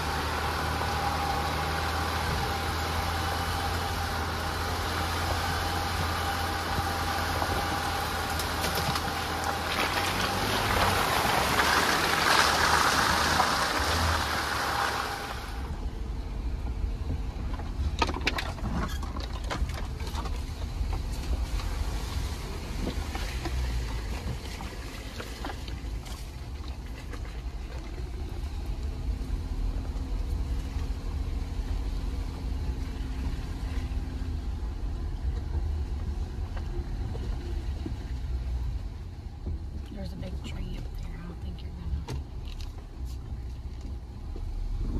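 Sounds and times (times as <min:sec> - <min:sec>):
vehicle engine rumble: 0:00.0 - 0:44.9
knocks and rattles: 0:17.4 - 0:21.5.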